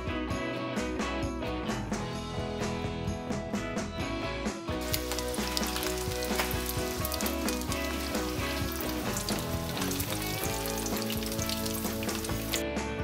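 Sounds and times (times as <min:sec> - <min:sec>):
background music: 0:00.0 - 0:13.0
chicken deep-frying in hot oil: 0:04.8 - 0:12.7.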